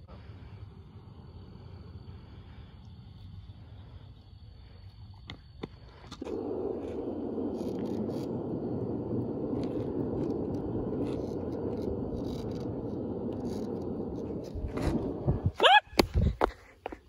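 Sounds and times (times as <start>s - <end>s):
longboard wheels rolling on asphalt: 5.0s - 17.0s.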